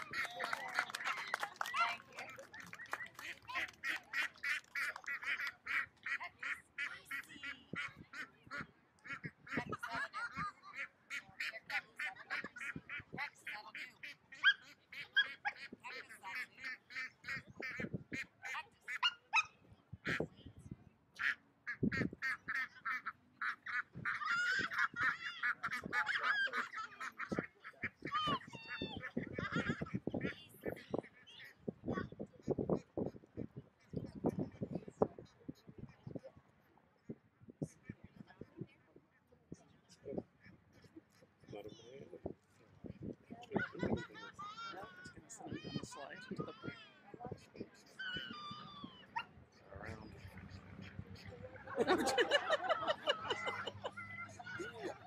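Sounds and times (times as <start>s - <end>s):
ducks quacking: 0.0s - 20.3s, 21.2s - 36.0s, 47.8s - 55.0s.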